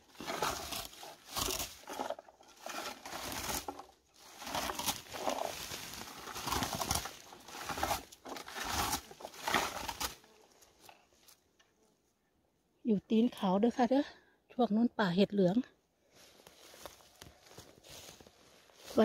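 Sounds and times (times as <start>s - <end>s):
berry picker rustling through bushes: 0.0s - 11.4s, 16.1s - 19.0s.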